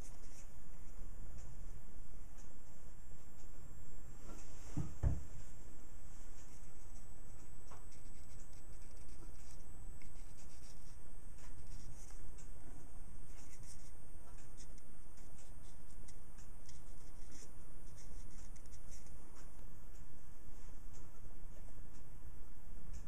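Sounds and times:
marker pen scratching on metal: 7.9 - 12.2, 13.3 - 19.2.

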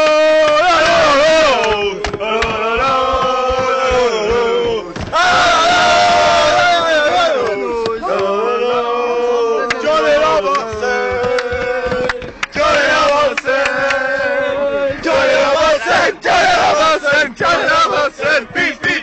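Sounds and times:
men singing a chant: 0.0 - 19.0
sharp knocks: 0.4 - 6.5, 10.4 - 14.0.

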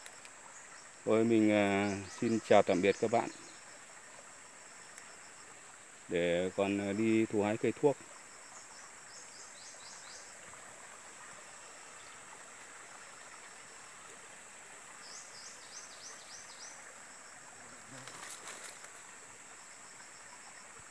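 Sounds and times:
high insect drone: 0.0 - 20.9
faint clicks and rustles: 17.8 - 19.2.

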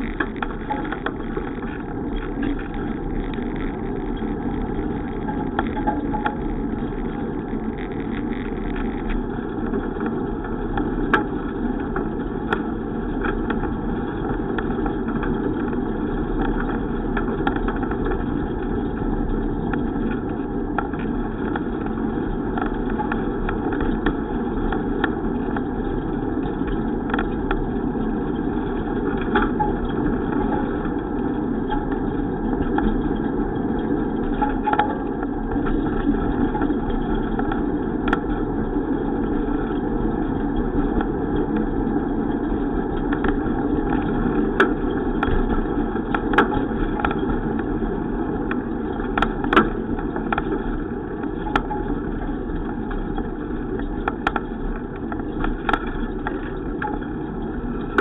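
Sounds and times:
sharp clicks and knocks: 0.0 - 13.8, 31.7 - 38.5, 43.0 - 47.7, 48.4 - 58.0
bicycle rumbling on road: 0.0 - 58.0.

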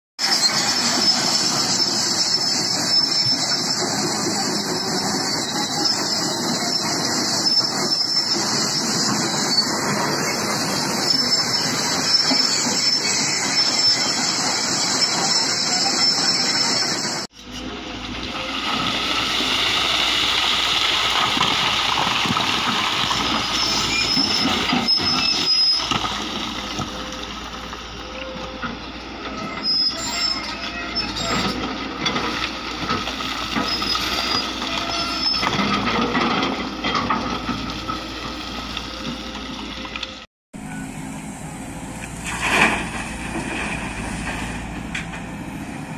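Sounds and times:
excavator diesel engine: 0.2 - 45.9
rock and earth sliding down: 18.1 - 27.9.

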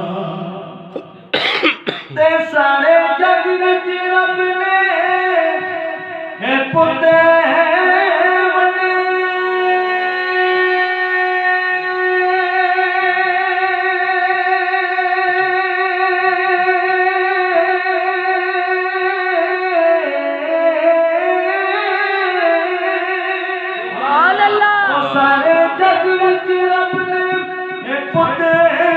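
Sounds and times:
man singing long note: 21.0 - 28.9.

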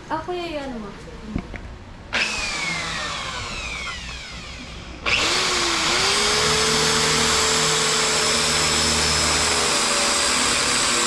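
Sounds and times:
electric drill whining: 2.1 - 11.0.

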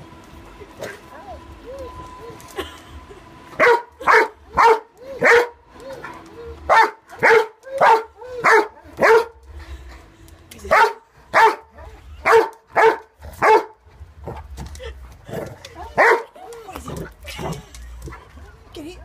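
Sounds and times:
dog barking: 3.6 - 5.6, 6.7 - 9.4, 10.7 - 13.8, 16.0 - 16.3.

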